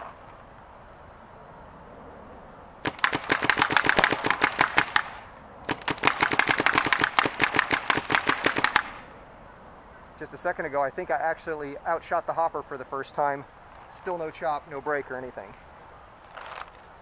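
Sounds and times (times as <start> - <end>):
paintball marker firing shots: 2.8 - 9.1.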